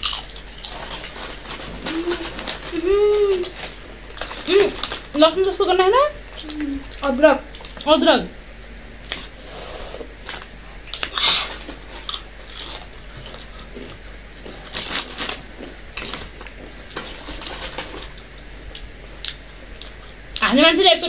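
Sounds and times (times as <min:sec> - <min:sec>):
potato chips crunching: 0:00.0 - 0:07.9, 0:10.2 - 0:20.1.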